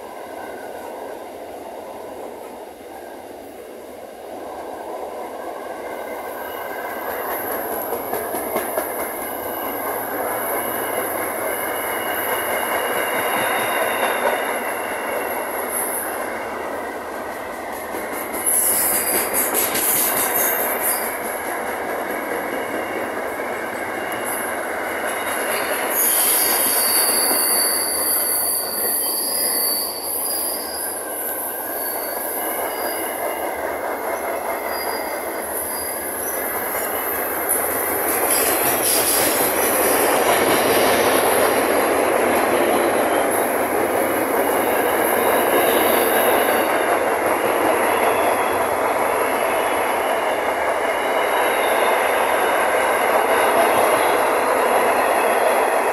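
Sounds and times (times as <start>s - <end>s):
train wagons rolling on rails: 0.0s - 55.9s
high-pitched wheel squeal: 25.9s - 33.2s, 34.6s - 37.3s.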